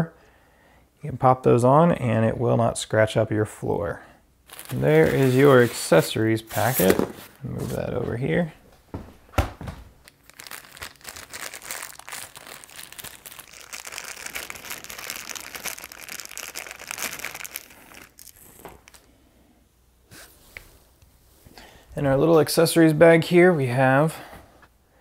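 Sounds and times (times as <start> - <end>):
plastic packaging crinkling: 4.4 - 7.8, 10.0 - 19.1.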